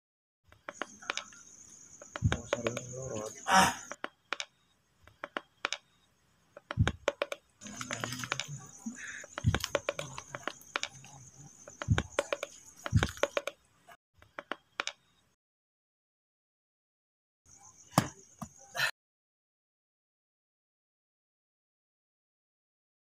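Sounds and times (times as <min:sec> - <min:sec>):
dull thumps on earth: 0:17.9 - 0:18.6.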